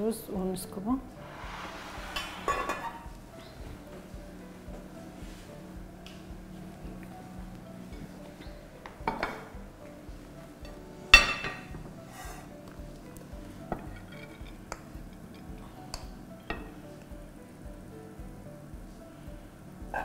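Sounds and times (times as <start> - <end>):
soft background music: 0.0 - 20.0
metal pot clank: 1.3 - 3.6, 10.6 - 11.9, 13.7 - 15.5
cookware clicks and knocks: 8.9 - 9.5.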